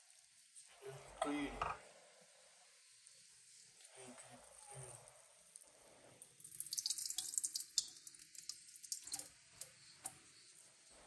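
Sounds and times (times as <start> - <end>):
water splashing into a steel sink: 6.4 - 10.1.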